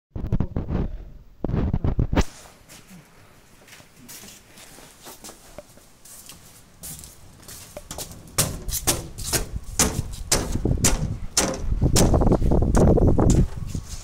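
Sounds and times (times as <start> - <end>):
footsteps on pavement: 3.6 - 10.7.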